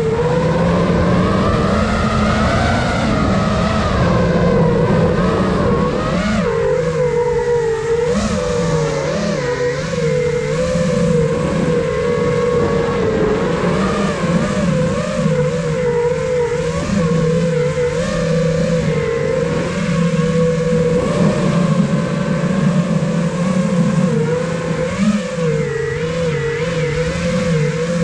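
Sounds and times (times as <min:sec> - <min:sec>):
drone motors whining: 0:00.0 - 0:28.0.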